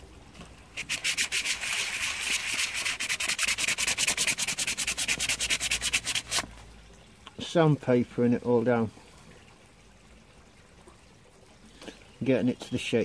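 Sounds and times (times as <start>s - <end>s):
sandpaper rubbing on wood: 0.8s - 6.4s.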